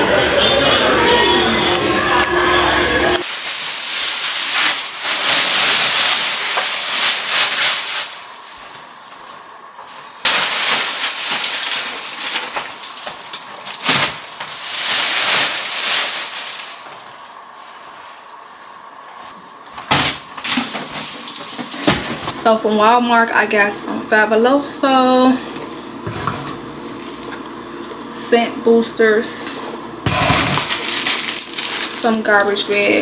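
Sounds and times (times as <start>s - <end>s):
sharp crackle of plastic: 3.2s - 8.5s, 10.2s - 17.4s, 30.1s - 33.0s
plastic bags crinkling: 3.2s - 9.3s, 10.2s - 17.4s, 20.4s - 22.3s, 30.2s - 33.0s.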